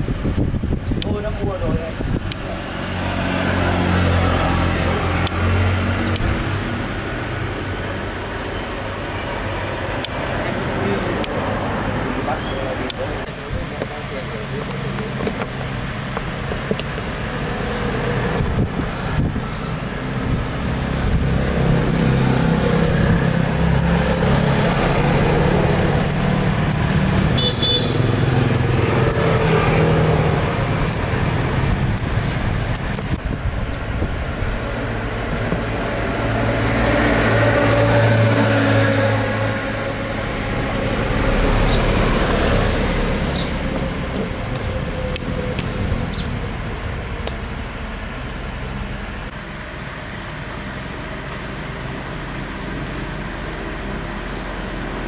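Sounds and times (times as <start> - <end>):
road traffic passing: 0.0 - 55.0.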